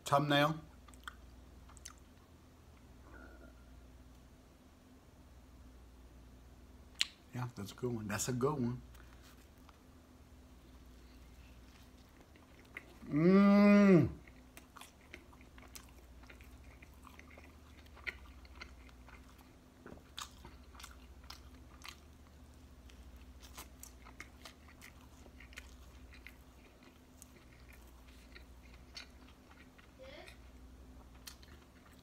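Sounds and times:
wet chewing and mouth smacks: 0.8s - 2.9s, 6.9s - 7.2s, 10.8s - 13.1s, 14.2s - 32.0s.

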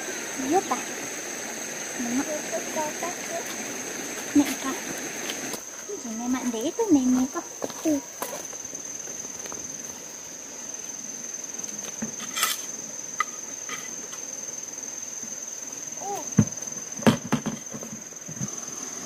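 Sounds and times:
insects trilling: 0.0s - 19.0s
sharp knocks: 16.4s - 18.5s.

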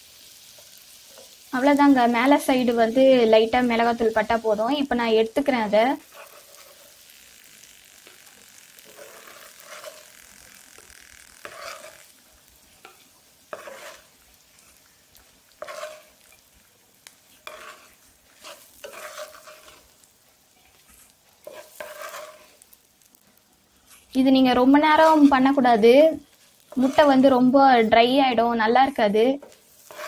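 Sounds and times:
eggs sizzling in oil: 0.0s - 30.0s
wooden spatula scraping a pan: 5.4s - 23.2s, 23.8s - 27.9s, 29.2s - 30.0s.

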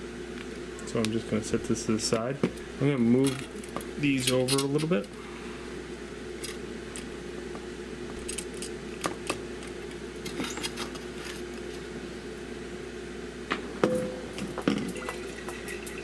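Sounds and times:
steady hum: 0.0s - 16.0s
sharp knocks: 13.5s - 15.2s.

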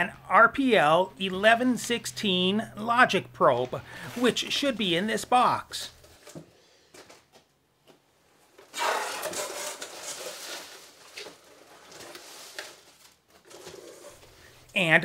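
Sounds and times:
cardboard scraping and rustling: 8.7s - 14.4s.

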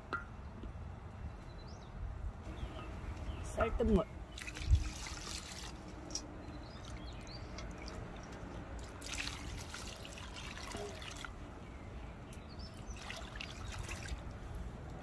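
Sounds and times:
water pouring and splashing: 4.3s - 11.4s, 12.7s - 14.6s.

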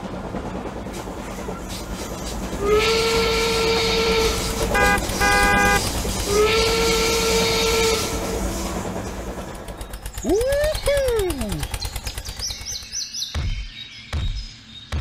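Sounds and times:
train running rumble: 0.0s - 13.0s
steam hissing: 2.1s - 9.8s
toy train whistle: 2.6s - 8.2s.

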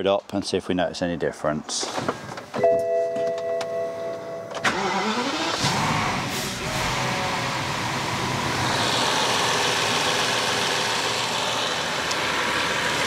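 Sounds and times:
car engine idling: 4.4s - 13.0s.

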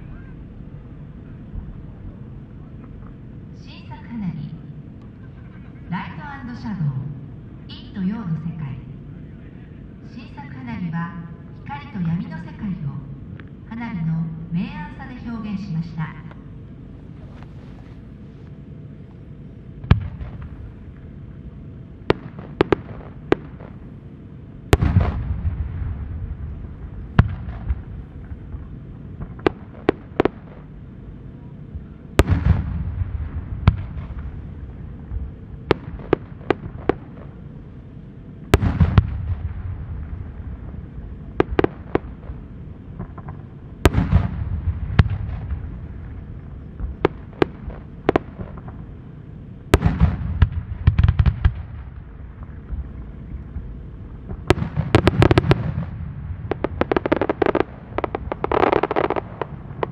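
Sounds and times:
firework booms with echoes: 19.8s - 20.9s, 22.0s - 23.9s, 24.7s - 30.7s, 31.8s - 37.4s, 38.5s - 48.9s, 49.7s - 59.9s
firework cracks: 22.1s - 23.8s, 24.7s - 28.4s, 32.2s - 34.4s, 38.5s - 40.4s, 41.4s - 42.4s, 43.0s - 46.2s, 49.8s - 52.0s, 54.3s - 59.9s.

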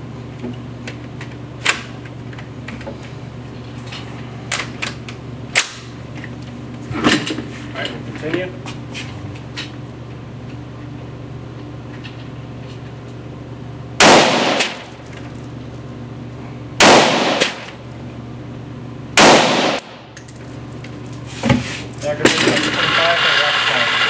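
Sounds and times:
rifle shots echoing: 14.0s - 14.9s, 16.8s - 17.8s, 19.2s - 20.0s.

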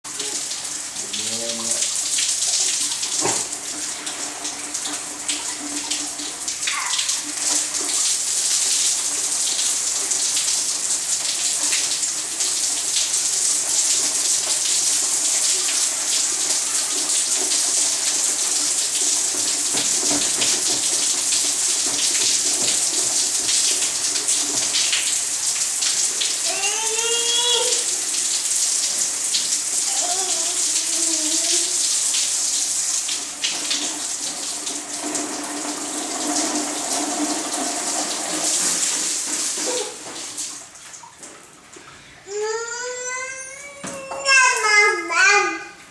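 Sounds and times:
heavy rain splashing on ground: 0.1s - 40.7s
child calling out: 6.6s - 7.2s, 26.4s - 27.9s, 29.9s - 31.8s, 39.6s - 40.0s, 42.3s - 45.8s.

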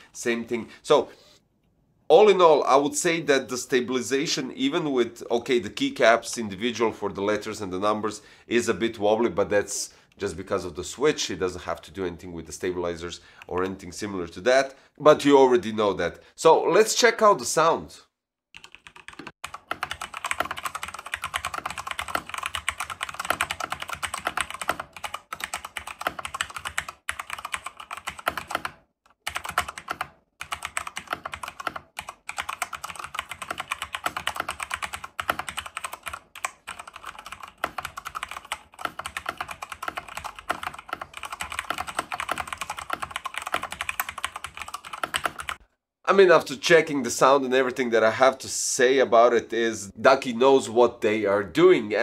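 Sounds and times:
mechanical keyboard typing: 18.6s - 45.6s.

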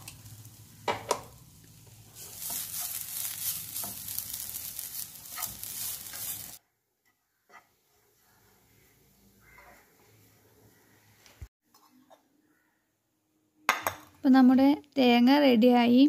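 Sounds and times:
coconut sizzling in a pan: 0.0s - 6.6s, 7.3s - 11.0s
spatula scraping a pan: 1.9s - 10.3s.

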